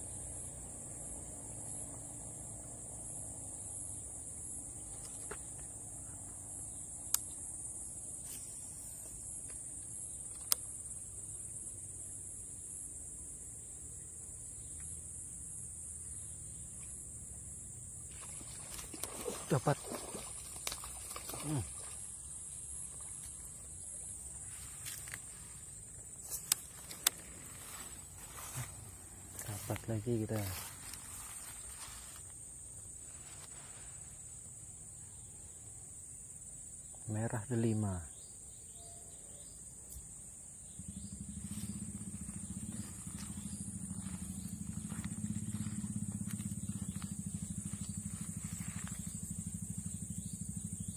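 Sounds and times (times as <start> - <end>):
high-pitched insect drone: 0.0 - 50.9
sharp clicks: 10.2 - 10.7, 26.2 - 27.3
small engine idling: 40.6 - 50.9.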